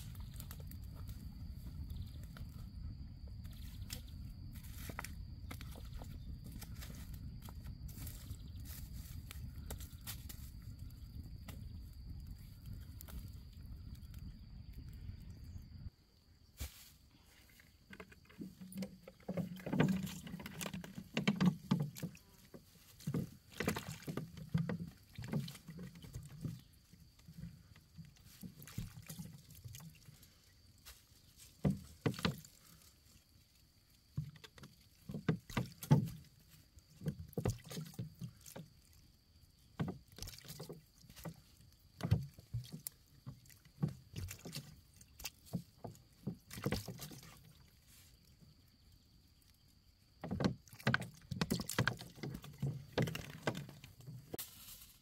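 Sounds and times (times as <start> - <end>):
water splashing and dripping: 18.2 - 26.6, 31.5 - 48.0, 50.2 - 54.7.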